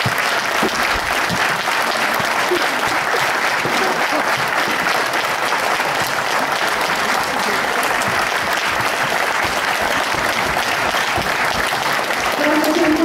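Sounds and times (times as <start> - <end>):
audience applause: 0.0 - 13.0.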